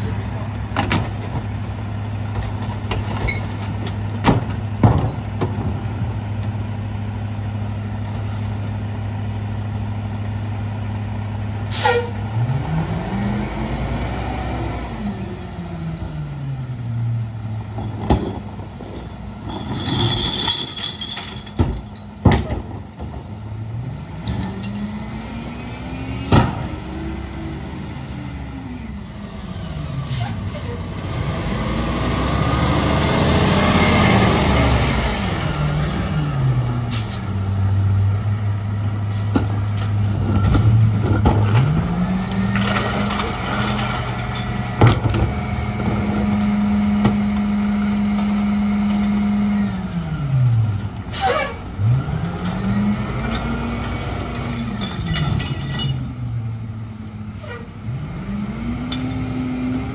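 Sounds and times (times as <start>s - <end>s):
garbage truck engine: 0.0s - 59.9s
brake squeal: 11.7s - 12.3s, 30.0s - 30.9s, 36.9s - 39.4s, 51.0s - 52.6s, 57.4s - 57.8s.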